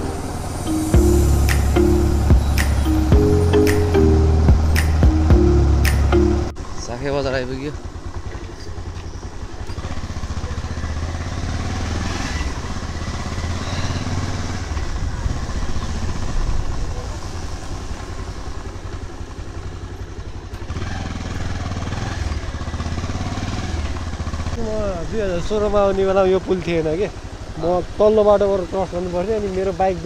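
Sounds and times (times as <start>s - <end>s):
motorcycle engine running: 4.1s - 30.0s.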